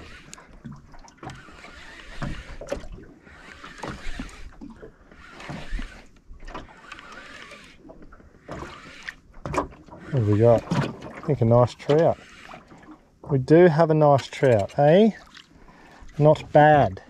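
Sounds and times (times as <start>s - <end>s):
fishing reel being cranked: 0.0s - 0.6s, 1.2s - 12.8s
water lapping against boat hull: 0.0s - 17.0s.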